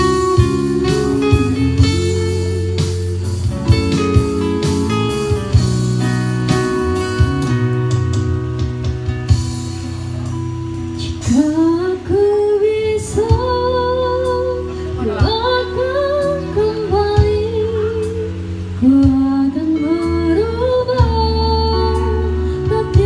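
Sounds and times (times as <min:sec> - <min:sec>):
woman singing: 0:00.0 - 0:04.0, 0:11.0 - 0:23.0
acoustic guitars: 0:00.0 - 0:23.0.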